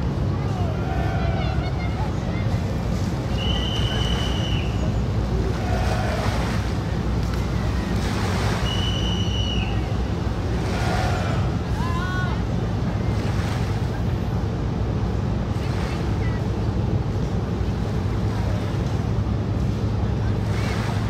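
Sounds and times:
boat engine rumble: 0.0 - 21.0
rush of boat wakes: 0.0 - 21.0
high whistle-like chirps: 8.6 - 9.8.

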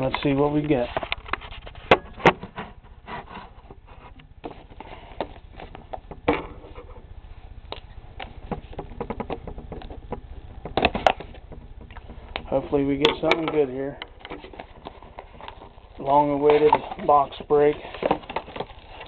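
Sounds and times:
small taps and scratches: 7.7 - 15.7.

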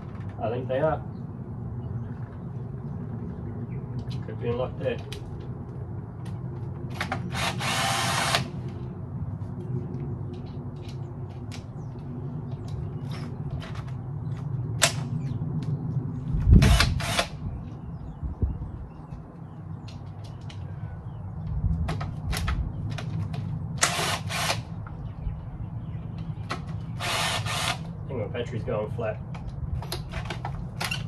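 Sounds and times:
cordless drill running: 7.3 - 8.5, 16.7 - 17.3, 23.8 - 24.6, 27.0 - 27.9.

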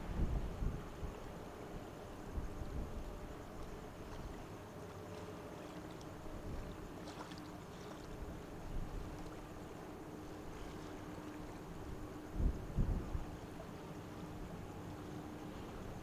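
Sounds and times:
faint even hum: 0.0 - 16.0
ship low rumble: 0.0 - 16.0
faint high ticks: 3.5 - 8.1.

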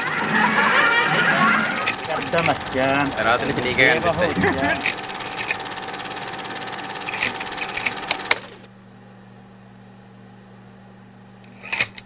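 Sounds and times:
film projector clatter: 0.0 - 8.7, 11.5 - 12.0
sharp clicks: 0.0 - 8.7.

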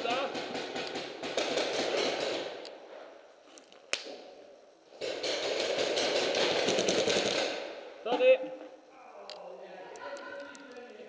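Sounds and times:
paintball markers firing: 0.0 - 2.7, 5.0 - 7.7.

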